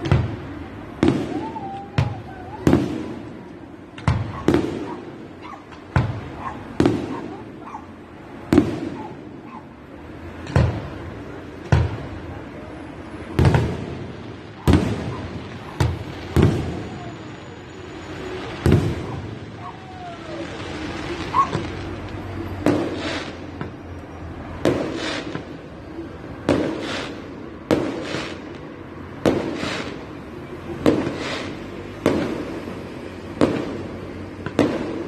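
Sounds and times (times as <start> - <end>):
fireworks bursting with echo: 0.0 - 35.0.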